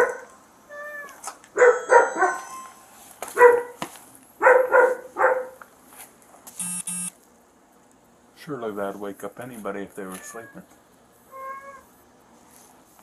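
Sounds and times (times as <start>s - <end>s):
dog barking: 0.0s - 0.3s, 1.6s - 2.4s, 3.4s - 3.8s, 4.4s - 5.6s
electronic beep: 6.6s - 7.1s.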